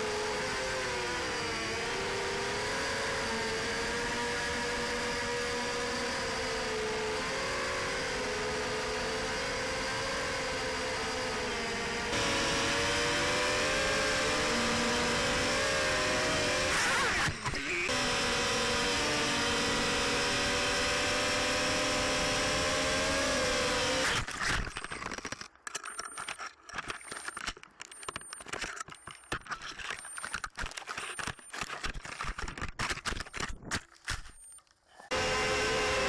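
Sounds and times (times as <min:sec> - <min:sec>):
quadcopter motors whining: 0:00.0 - 0:27.5, 0:35.0 - 0:36.0.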